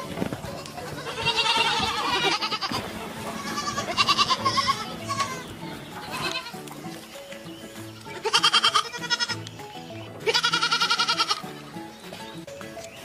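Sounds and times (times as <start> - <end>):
slow low background music: 0.0 - 13.0
goat kid bleating: 0.4 - 6.8, 7.8 - 9.6, 10.2 - 11.5.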